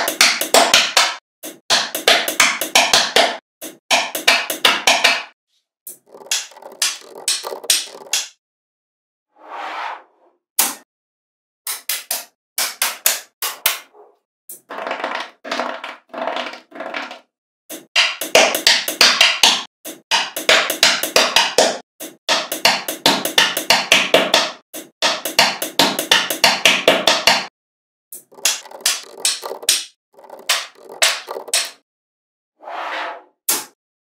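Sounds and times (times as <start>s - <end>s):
magnetic balls clicking together: 5.9s - 8.3s, 28.2s - 31.8s.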